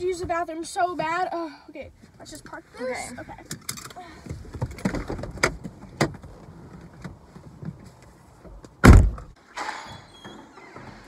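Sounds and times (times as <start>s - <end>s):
car door slamming: 8.8s - 9.4s.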